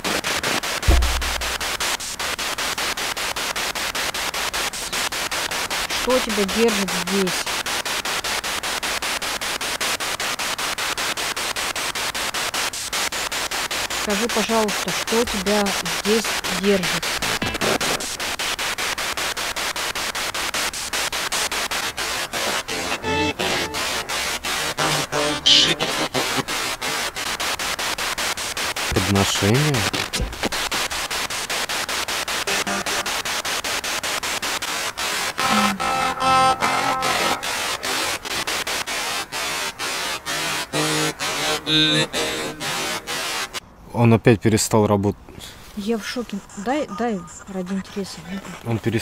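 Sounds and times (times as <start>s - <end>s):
pulsing radio static: 0.0s - 43.6s, 45.8s - 49.0s
low thump: 0.9s - 1.7s, 30.2s - 30.6s.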